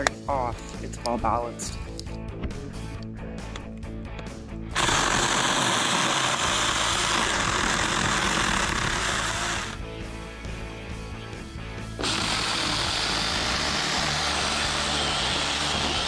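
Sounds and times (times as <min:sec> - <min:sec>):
background music: 0:00.0 - 0:16.0
electric chainsaw running: 0:04.8 - 0:09.8, 0:12.0 - 0:16.0.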